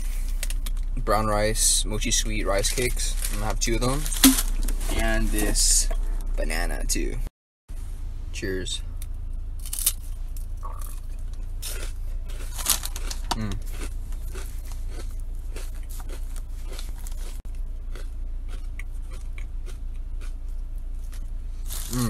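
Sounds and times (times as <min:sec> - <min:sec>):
low hum: 0:00.0 - 0:22.0
crunchy rice cake chewing: 0:10.7 - 0:22.0.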